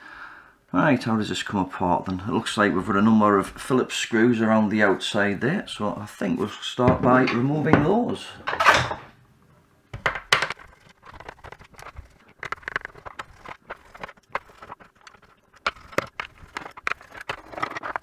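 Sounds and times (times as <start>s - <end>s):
screws and plastic clicking and knocking: 9.9s - 18.0s.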